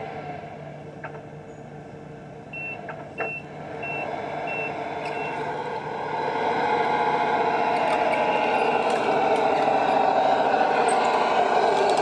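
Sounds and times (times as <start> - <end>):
short high reverse beeps: 2.6 - 5.4
toy truck running noise: 3.2 - 12.0.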